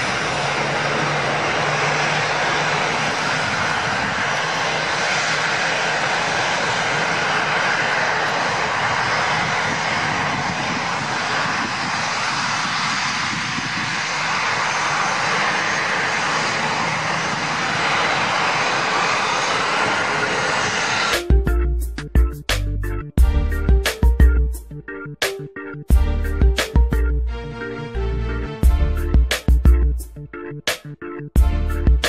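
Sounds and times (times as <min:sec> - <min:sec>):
faint jet whine: 0:00.0 - 0:23.0
jet engines rushing: 0:00.0 - 0:32.0.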